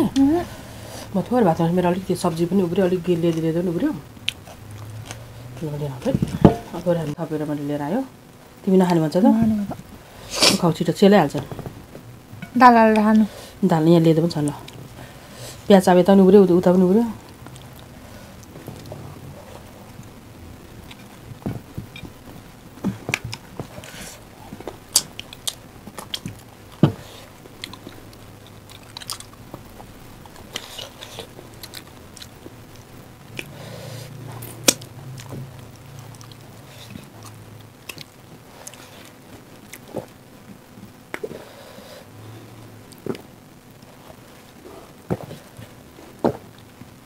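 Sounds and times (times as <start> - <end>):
chewing and mouth sounds: 24.9 - 26.8, 27.5 - 32.4, 33.3 - 40.2.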